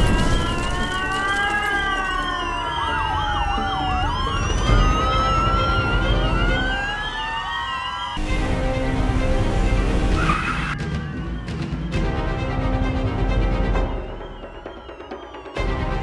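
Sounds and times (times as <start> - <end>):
siren high warble: 0.0 - 8.3, 13.8 - 16.0
siren swooping yelp: 0.0 - 8.3, 10.0 - 12.0, 13.6 - 16.0
police sirens wailing: 0.0 - 16.0.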